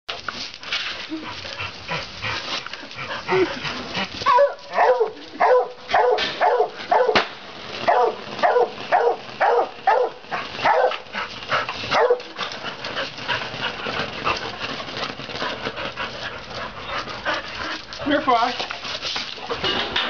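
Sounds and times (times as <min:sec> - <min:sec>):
firework hissing and crackling: 0:00.1 - 0:20.0
dog barking: 0:04.3 - 0:07.2, 0:07.9 - 0:11.0, 0:11.9 - 0:12.3
sharp pop: 0:06.1 - 0:07.4.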